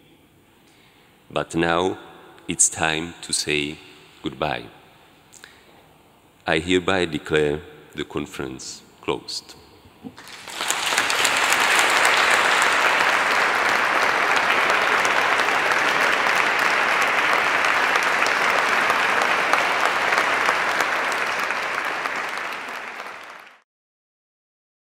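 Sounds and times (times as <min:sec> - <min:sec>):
audience applauding: 0:10.2 - 0:23.6.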